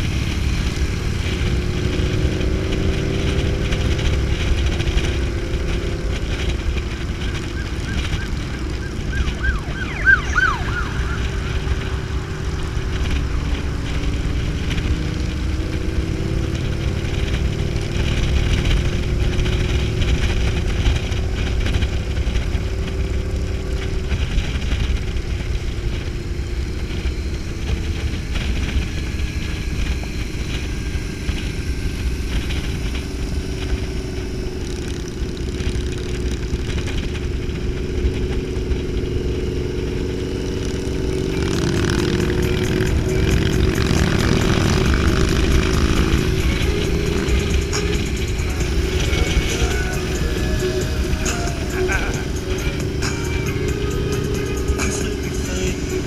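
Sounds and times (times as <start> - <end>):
wind rush: 0.0 - 35.9
motorcycle engine cruising: 0.0 - 56.0.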